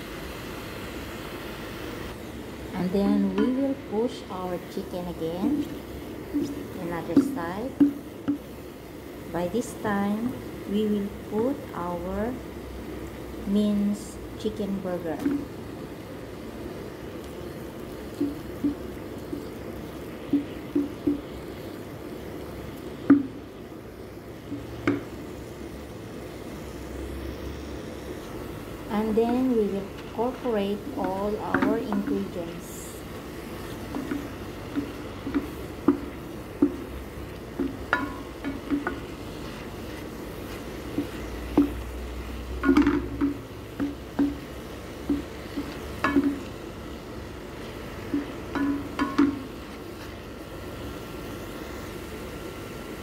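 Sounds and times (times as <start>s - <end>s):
low steady background noise: 0.0s - 53.0s
low steady hum: 0.0s - 53.0s
wooden spatula knocking on a pan: 20.2s - 21.3s, 23.1s - 23.4s, 24.8s - 25.1s, 31.1s - 32.3s, 34.0s - 36.9s, 37.6s - 39.0s, 40.9s - 41.8s, 42.6s - 46.4s, 48.1s - 49.4s.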